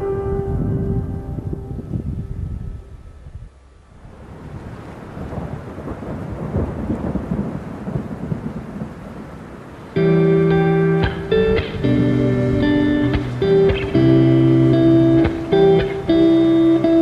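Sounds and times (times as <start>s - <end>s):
music with plucked guitar: 0.0s - 2.9s, 10.0s - 17.0s.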